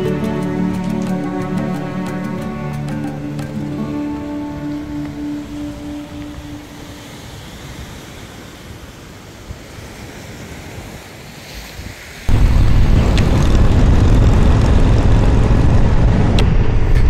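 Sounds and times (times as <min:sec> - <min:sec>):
surf washing over rocks: 0:03.4 - 0:16.1
wind on microphone: 0:11.7 - 0:17.0
motorcycle engine: 0:12.3 - 0:17.0.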